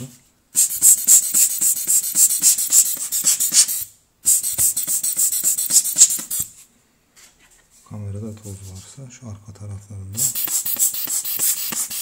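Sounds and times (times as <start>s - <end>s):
rubber air blower bulb puffing: 0.6s - 6.5s, 10.2s - 12.0s.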